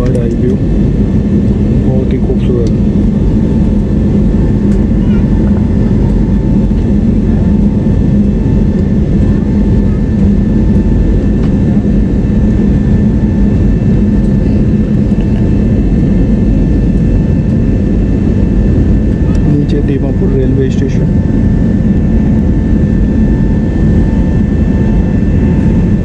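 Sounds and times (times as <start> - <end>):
airliner engines roaring: 0.0 - 26.0
faint engine whine: 0.0 - 26.0
low cabin hum: 0.0 - 26.0.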